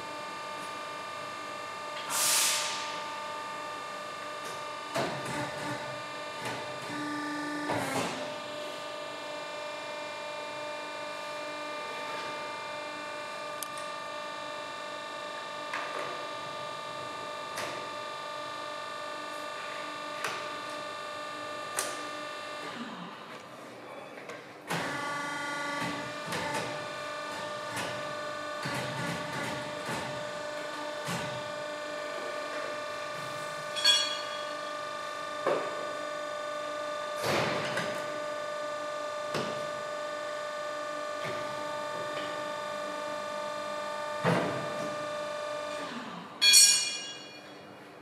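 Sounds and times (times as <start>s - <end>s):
tyre changer mechanical hum: 0.0s - 48.0s.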